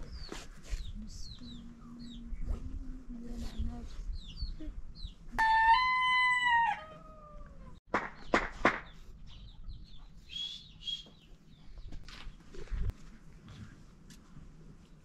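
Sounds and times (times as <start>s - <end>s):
rooster crowing: 5.4s - 7.6s.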